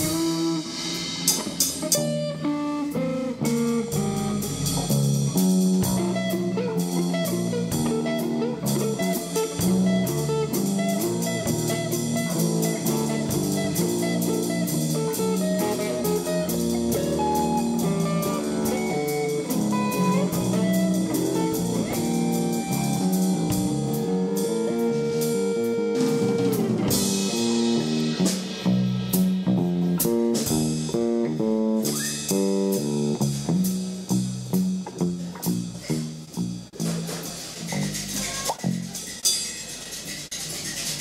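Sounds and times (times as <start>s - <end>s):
jazz trio playing: 0.0s - 41.0s
bending guitar note: 5.9s - 28.9s
drum hits: 36.2s - 41.0s.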